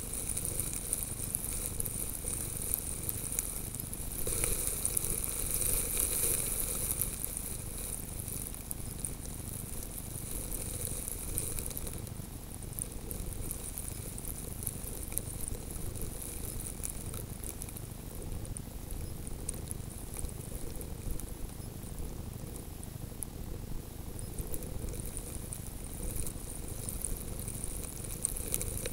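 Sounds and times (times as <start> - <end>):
blowing snow crackling: 0.0 - 18.4, 24.4 - 28.9.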